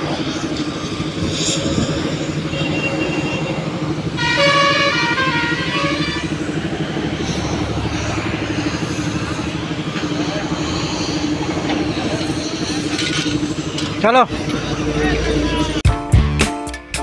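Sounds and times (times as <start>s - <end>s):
truck engines rumbling: 0.0s - 15.8s
highway traffic: 0.0s - 15.9s
vehicle horn: 2.3s - 6.4s.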